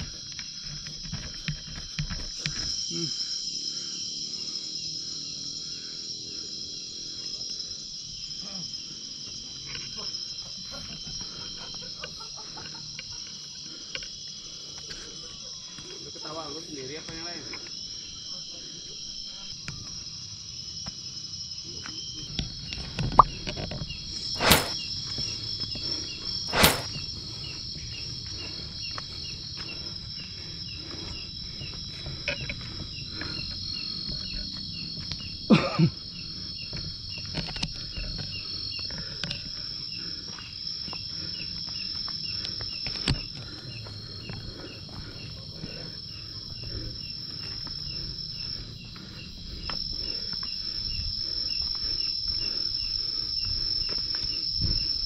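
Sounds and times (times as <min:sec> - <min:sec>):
night insects trilling: 0:00.0 - 0:55.0
footsteps on dirt trail: 0:24.1 - 0:55.0.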